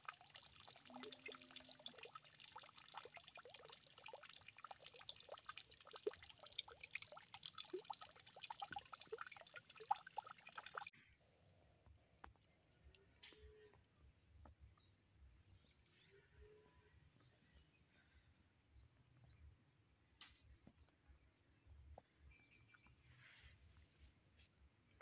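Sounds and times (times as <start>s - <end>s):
water trickling and dripping: 0.0s - 10.9s.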